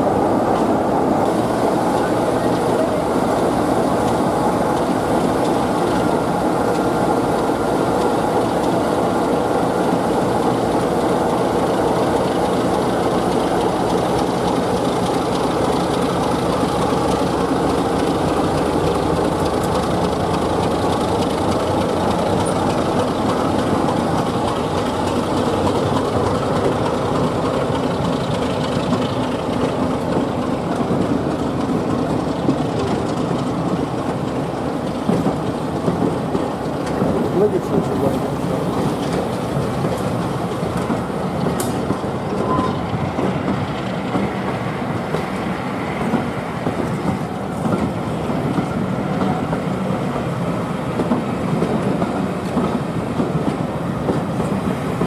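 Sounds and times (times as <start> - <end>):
train wheels rumbling on rails: 0.0 - 55.0
faint high tone: 42.4 - 42.9.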